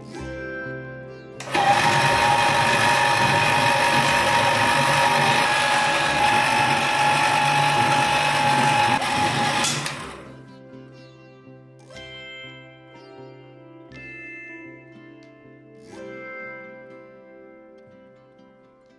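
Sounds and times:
electric motor whining: 1.4 - 10.4.

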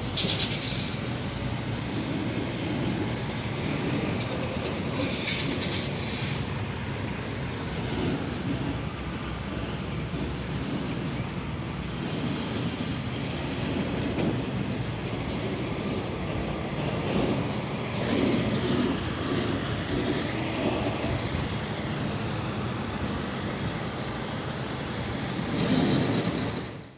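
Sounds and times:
truck diesel engine rumbling: 0.0 - 26.9.

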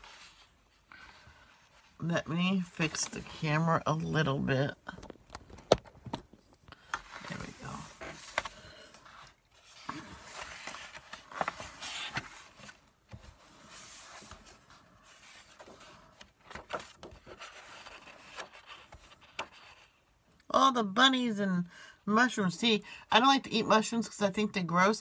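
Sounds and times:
rustling and scraping handling noise: 0.0 - 3.8, 5.0 - 20.1.

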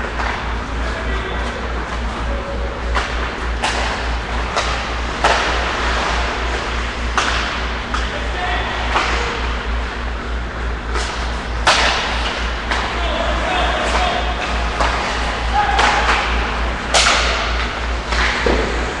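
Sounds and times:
steady low hum: 0.0 - 19.0
hockey pucks cracking on boards: 2.9 - 8.1, 10.9 - 13.0, 13.8 - 19.0.

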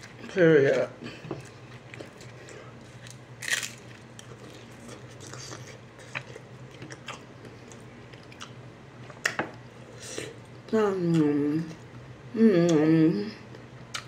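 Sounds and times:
crunchy bite and chewing: 0.0 - 8.6.

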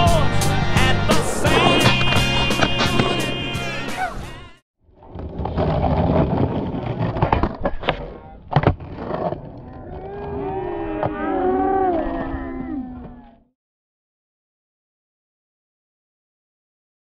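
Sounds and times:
skateboard wheels rolling on concrete: 0.5 - 4.3, 5.0 - 10.6
skateboard clacking: 1.5 - 3.4.

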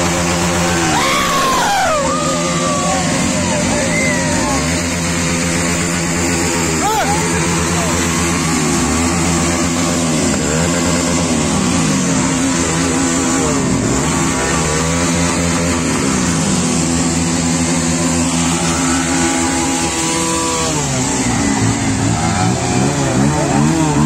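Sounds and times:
motorcycle engines revving: 0.0 - 24.0.

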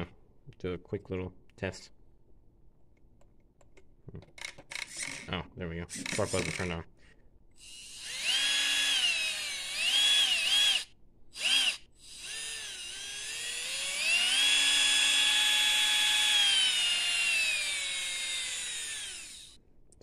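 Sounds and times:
electric motor whining: 7.6 - 19.6.

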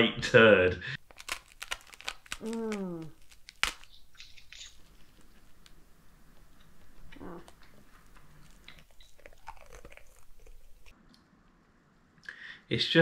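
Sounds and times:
crunchy snack chewing: 1.0 - 11.2.

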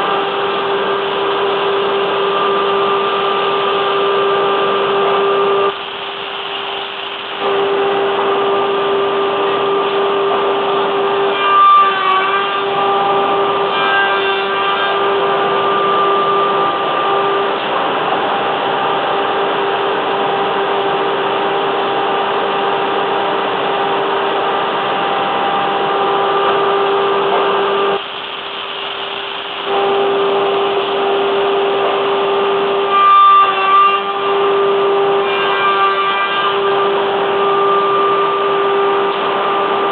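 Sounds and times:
woodworking machine whining: 0.0 - 39.9.

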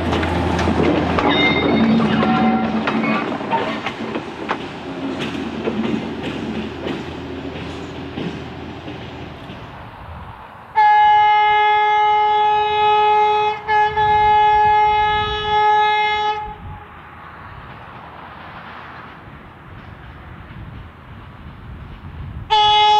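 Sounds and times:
wheels clicking over rail joints: 0.0 - 9.9, 17.4 - 22.9
rail motor horn: 1.2 - 3.8, 10.7 - 17.0, 22.5 - 22.9.

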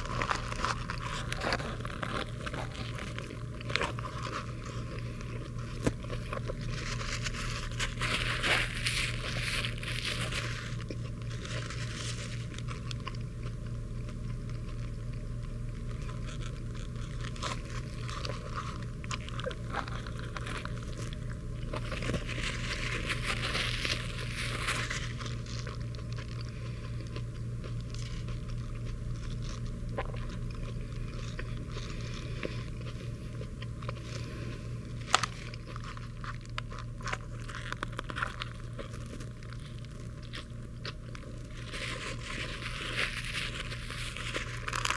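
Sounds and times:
paper wrapper crinkling: 0.0 - 13.2, 15.9 - 26.7, 34.9 - 44.9
person chewing: 0.0 - 44.9
steady low hum: 0.0 - 44.9.

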